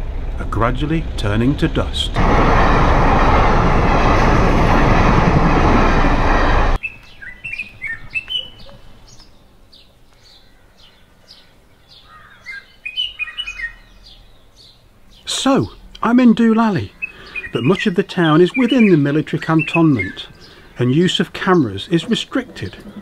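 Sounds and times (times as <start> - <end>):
passenger train passing: 0.0 - 6.8
small birds chirping: 6.8 - 23.0.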